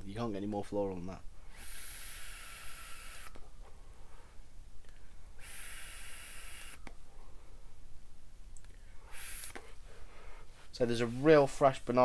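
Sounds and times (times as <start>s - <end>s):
e-cigarette draw hissing: 1.4s - 3.5s, 5.4s - 7.0s, 9.0s - 10.1s.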